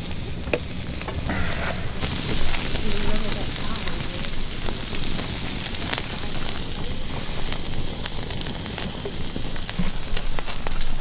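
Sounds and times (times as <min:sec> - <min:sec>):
campfire crackling: 0:00.0 - 0:11.0
food sizzling on a grill: 0:00.0 - 0:11.0
steady low rumble: 0:00.1 - 0:06.4
sharp pops: 0:00.4 - 0:07.5.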